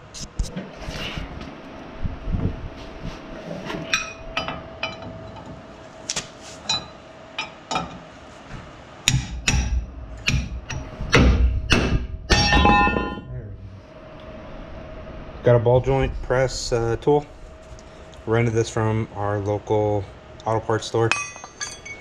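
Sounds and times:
hammer striking steel fork: 0:09.1 - 0:13.2.

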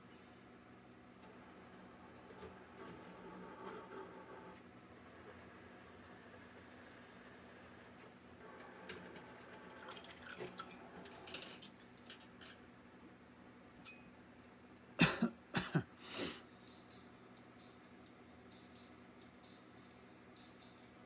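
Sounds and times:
small objects clicking and rattling: 0:09.6 - 0:12.6
person coughing: 0:15.0 - 0:16.4.

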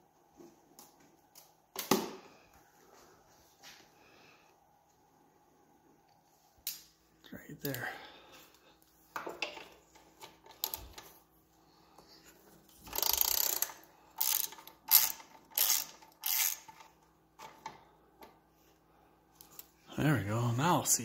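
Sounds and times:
ratchet wrench clicking: 0:12.9 - 0:16.9.

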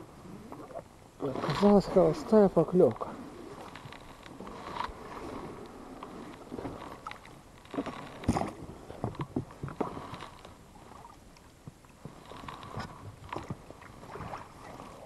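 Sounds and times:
knocks and clicks on boat: 0:05.6 - 0:15.0
water splashing: 0:12.2 - 0:15.0.

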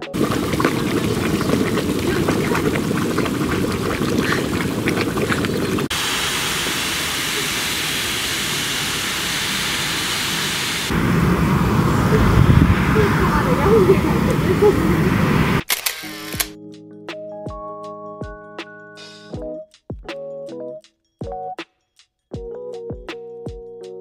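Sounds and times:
steam vent hissing: 0:05.9 - 0:15.6.

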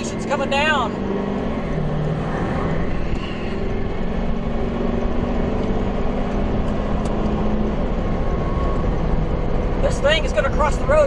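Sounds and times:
faint engine hum: 0:00.0 - 0:11.0
vehicle rumble and hiss: 0:01.8 - 0:04.5.

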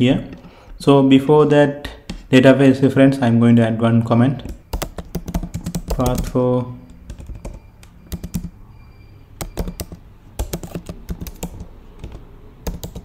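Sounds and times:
computer keyboard typing: 0:04.4 - 0:08.6, 0:09.4 - 0:13.0.

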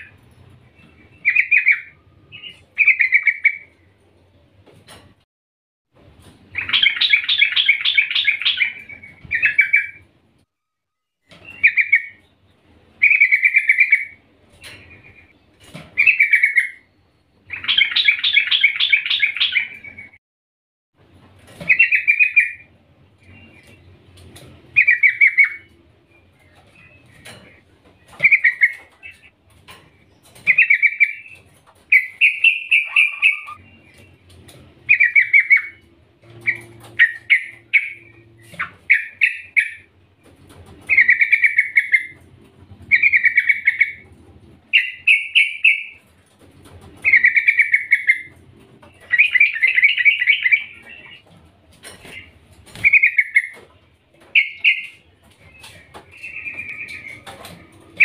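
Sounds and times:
bird calling trilled phrases: 0:00.8 - 0:03.8, 0:06.6 - 0:10.0, 0:13.0 - 0:14.2, 0:24.8 - 0:27.3, 0:28.0 - 0:29.3, 0:30.2 - 0:34.2, 0:34.9 - 0:39.9, 0:40.9 - 0:42.3, 0:42.9 - 0:44.0, 0:44.7 - 0:46.1, 0:47.0 - 0:51.3, 0:52.1 - 0:53.7, 0:54.3 - 0:58.0.

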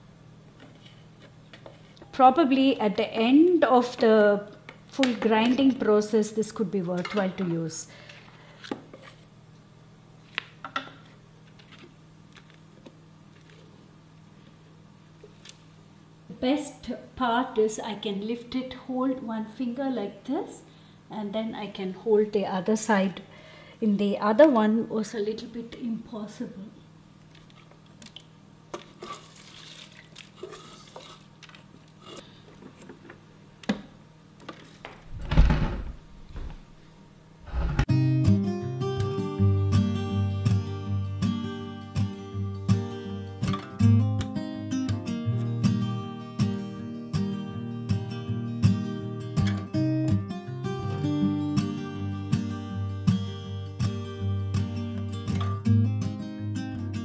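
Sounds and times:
spatula scraping batter from drum: 0:29.0 - 0:31.3.

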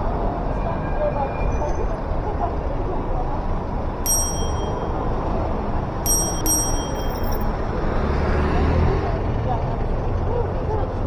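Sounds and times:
street traffic noise: 0:00.0 - 0:11.0
electronic dings: 0:04.1 - 0:05.0, 0:06.1 - 0:07.4.

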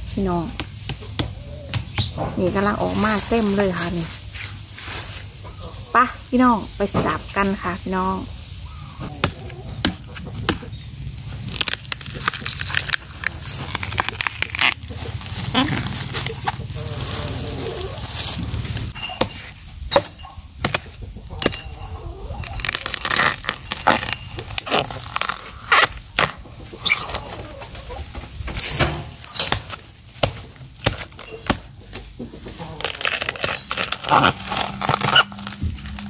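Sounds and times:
dry leaf litter rustling: 0:02.4 - 0:09.8, 0:10.8 - 0:19.9, 0:21.9 - 0:36.0
knife chopping bamboo: 0:09.1 - 0:10.7, 0:19.2 - 0:21.6, 0:28.7 - 0:32.0.

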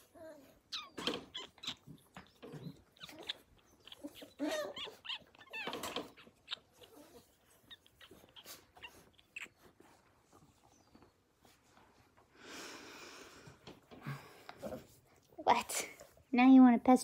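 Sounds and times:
puppy whining and yelping: 0:00.0 - 0:11.6.

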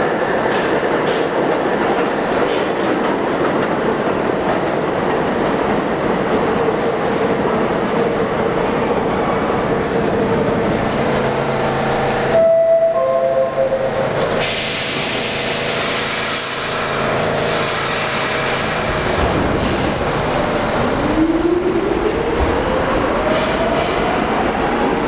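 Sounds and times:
train doors hissing shut: 0:14.0 - 0:20.6.

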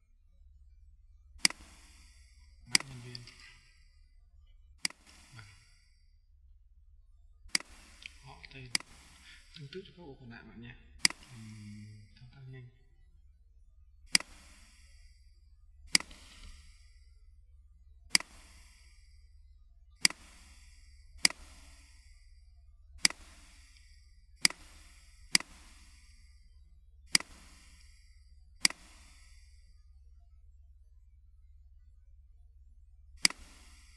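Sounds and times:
steady low hum: 0:00.0 - 0:33.9
computer mouse clicks: 0:01.4 - 0:03.7, 0:04.8 - 0:05.8, 0:07.5 - 0:09.9, 0:11.0 - 0:11.9, 0:14.1 - 0:15.1, 0:15.9 - 0:16.9, 0:18.1 - 0:19.0, 0:20.0 - 0:22.1, 0:23.0 - 0:26.3, 0:27.1 - 0:28.0, 0:28.6 - 0:29.6, 0:33.2 - 0:33.9.

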